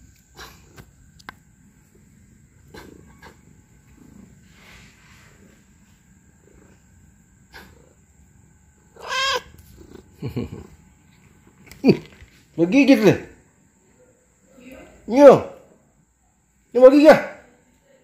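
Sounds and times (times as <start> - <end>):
faint rustles: 0.0 - 7.8
cat meowing: 8.9 - 9.6.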